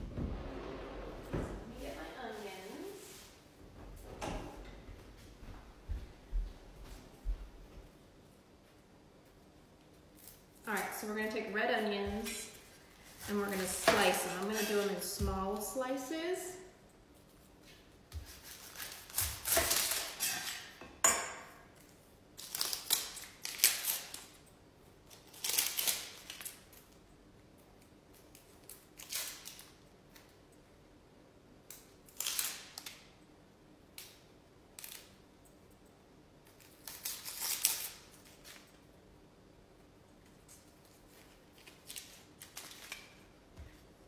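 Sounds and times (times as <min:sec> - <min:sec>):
knife cutting onion on board: 0:18.1 - 0:20.8
onion skin crackling: 0:36.4 - 0:38.7.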